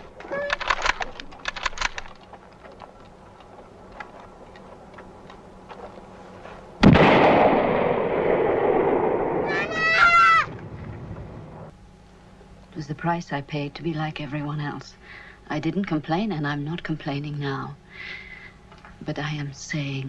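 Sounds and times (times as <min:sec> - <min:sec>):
faint clicks and rustles: 0:00.0 - 0:06.7
rifle shot with echo: 0:06.8 - 0:09.7.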